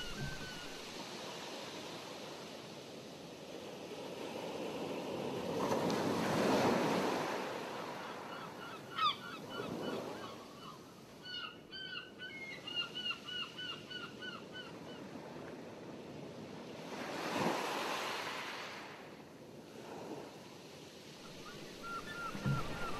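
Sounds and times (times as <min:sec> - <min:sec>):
bird calls: 0:00.0 - 0:00.9, 0:08.3 - 0:14.8, 0:21.2 - 0:22.9
water rushing: 0:00.0 - 0:01.0, 0:21.2 - 0:22.9
wind on microphone: 0:00.0 - 0:01.0.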